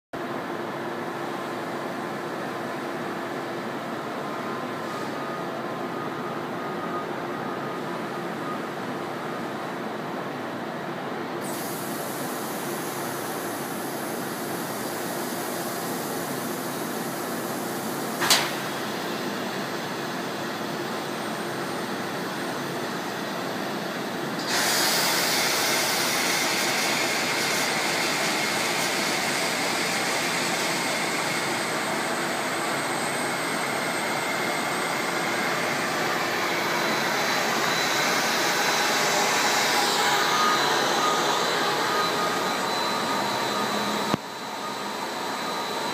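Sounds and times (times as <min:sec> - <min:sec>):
industrial machinery running: 0:00.2 - 0:45.9
loud hissing noise: 0:11.4 - 0:18.7, 0:34.6 - 0:45.9.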